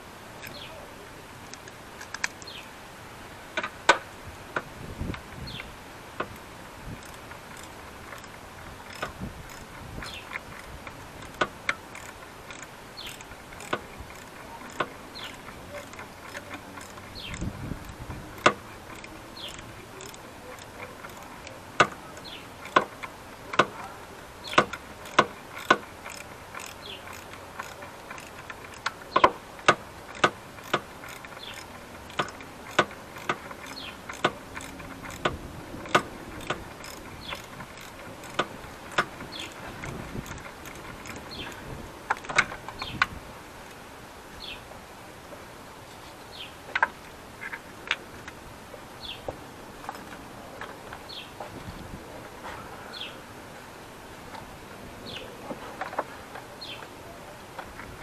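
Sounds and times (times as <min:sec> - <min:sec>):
hand tools clicking and knocking: 0:03.6 - 0:43.2, 0:49.8 - 0:51.6.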